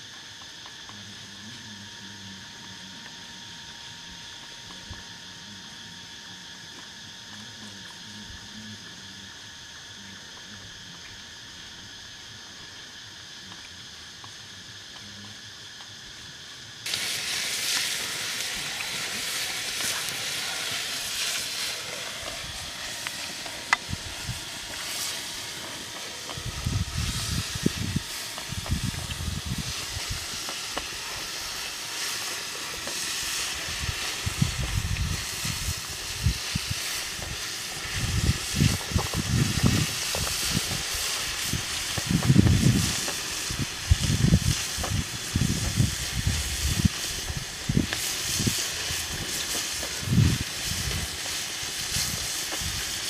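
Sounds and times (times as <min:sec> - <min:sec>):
meat sizzling in a pan: 0:10.7 - 0:53.0.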